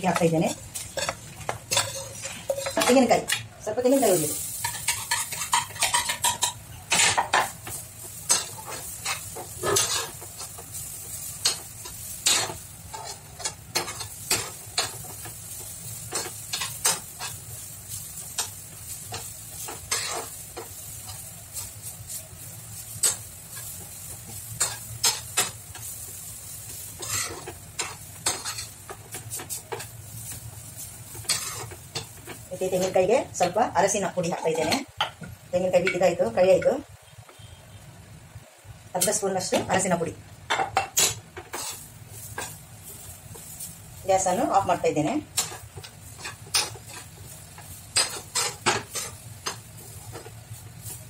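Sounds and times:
metal spoon scraping frying pan: 0.8 - 3.4, 4.0 - 10.8, 11.4 - 15.3, 18.2 - 22.2, 26.9 - 29.9, 31.1 - 35.2, 40.5 - 51.0.

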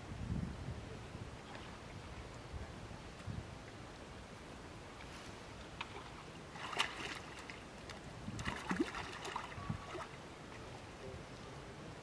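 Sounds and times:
water splashing and sloshing: 4.9 - 10.9.

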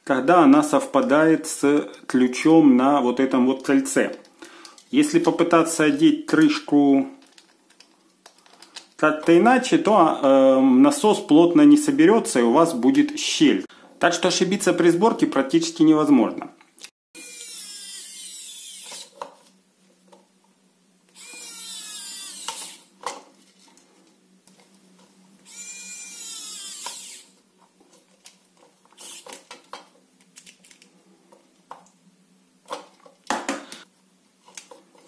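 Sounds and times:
plastic parts clicking: 7.2 - 9.0, 27.9 - 30.9
electric screwdriver whine: 17.2 - 19.2, 21.1 - 22.9, 25.4 - 27.4, 29.0 - 29.4.

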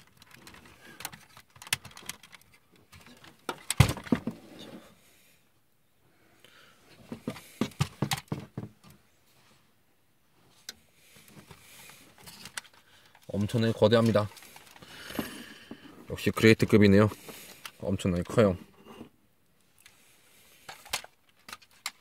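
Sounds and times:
plastic clatter: 0.0 - 4.4, 11.4 - 16.0, 20.7 - 22.0.

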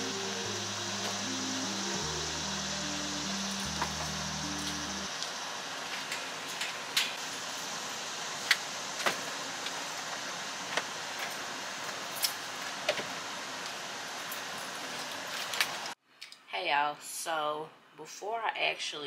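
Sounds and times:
low background music: 0.0 - 5.1
outdoor background hiss: 0.0 - 19.0.

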